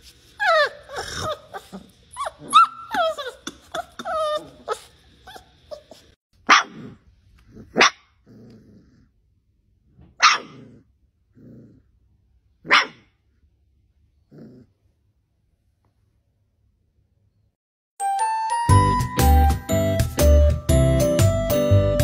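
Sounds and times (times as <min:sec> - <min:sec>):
puppy growling: 0:00.4 - 0:06.1, 0:06.7 - 0:09.4, 0:10.4 - 0:12.2, 0:14.1 - 0:15.0
puppy yapping: 0:00.4 - 0:06.9, 0:10.2 - 0:10.7, 0:12.6 - 0:13.1.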